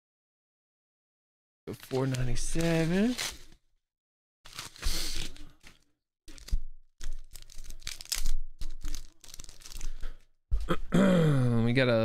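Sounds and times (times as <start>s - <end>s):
paper envelope tearing: 1.7s - 3.6s, 4.5s - 10.3s
plastic sleeve crinkling: 1.7s - 3.6s, 4.5s - 10.3s.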